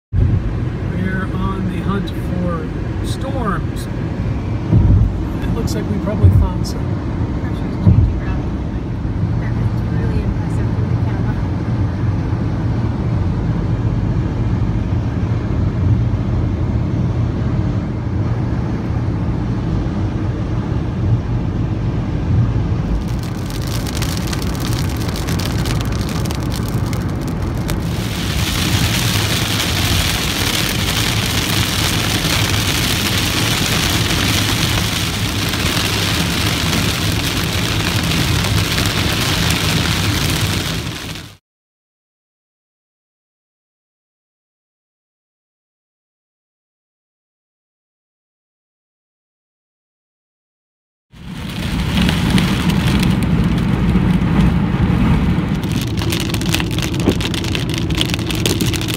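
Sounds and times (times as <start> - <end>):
car road and engine rumble: 0.1 - 41.4, 51.2 - 58.9
rain on windshield: 22.9 - 41.4, 51.2 - 58.9.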